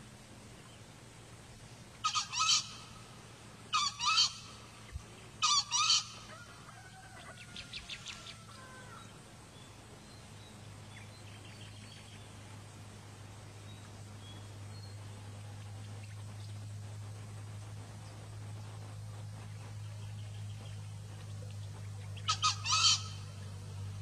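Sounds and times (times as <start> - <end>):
junglefowl crowing: 2.0 - 2.9, 3.7 - 4.6, 5.4 - 9.2, 22.2 - 23.4.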